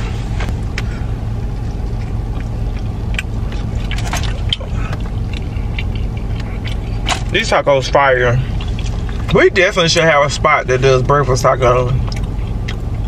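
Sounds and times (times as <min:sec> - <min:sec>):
car idling: 0:00.0 - 0:13.0.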